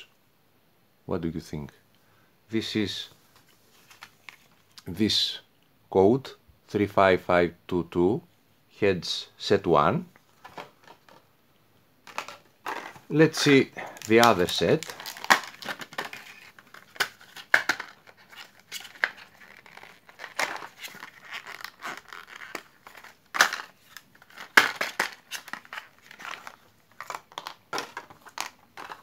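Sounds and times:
plastic packaging crinkling: 0:12.1 - 0:29.0.

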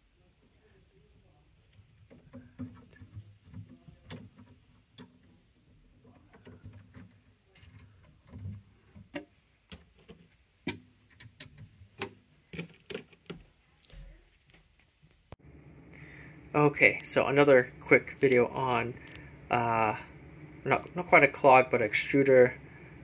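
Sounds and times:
plastic parts clicking: 0:06.1 - 0:13.5
low steady hum: 0:15.3 - 0:23.0.

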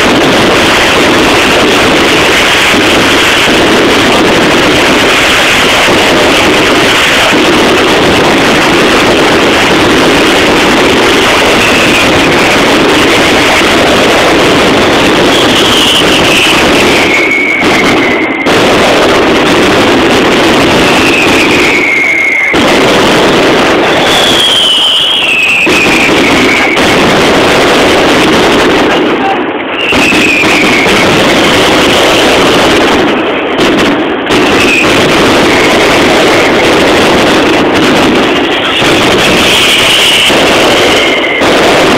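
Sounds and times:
firecracker barrage crackling: 0:00.0 - 0:41.9
whistling tone: 0:15.3 - 0:18.4, 0:21.1 - 0:22.5, 0:24.0 - 0:26.8, 0:29.8 - 0:31.0.

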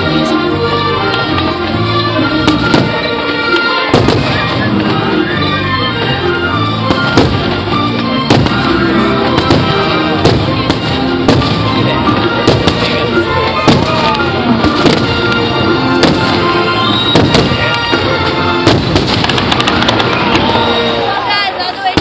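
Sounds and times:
loud music: 0:00.0 - 0:22.0
firework shells bursting: 0:18.6 - 0:20.6.

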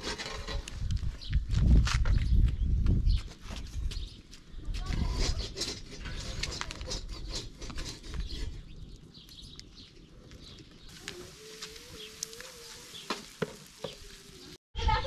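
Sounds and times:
metal spatula scraping griddle: 0:00.0 - 0:00.7, 0:05.0 - 0:08.6.

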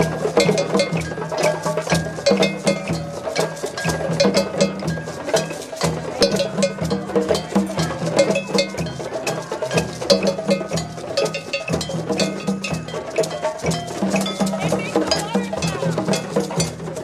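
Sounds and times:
hand drums playing: 0:00.0 - 0:17.0.

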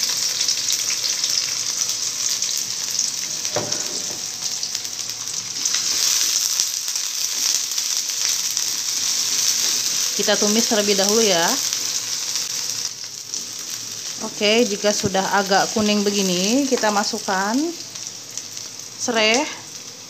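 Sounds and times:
shallots sizzling in hot oil: 0:00.0 - 0:20.0
single knock: 0:03.6 - 0:04.2.

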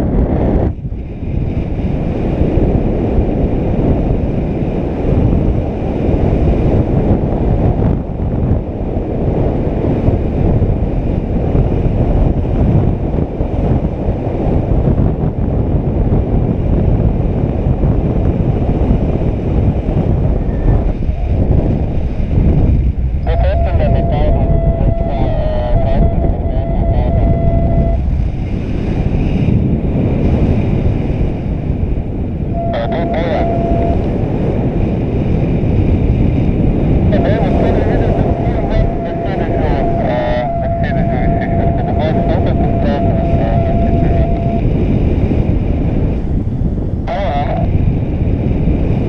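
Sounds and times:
wind noise on microphone: 0:00.0 - 0:49.0.

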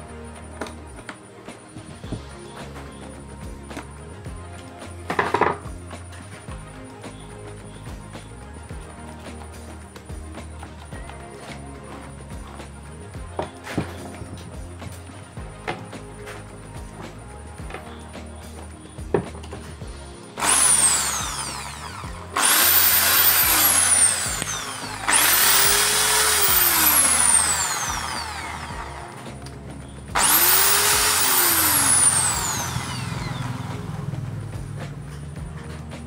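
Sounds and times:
electric drill whining: 0:20.4 - 0:29.5, 0:30.1 - 0:34.4.

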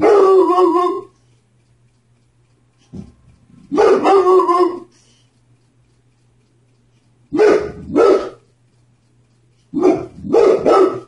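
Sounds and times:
dog barking: 0:00.0 - 0:01.1, 0:03.7 - 0:04.8, 0:07.3 - 0:08.4, 0:09.7 - 0:11.0.

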